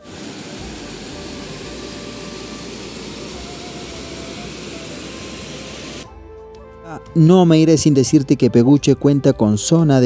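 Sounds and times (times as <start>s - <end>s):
waterfall rushing: 0.0s - 6.0s.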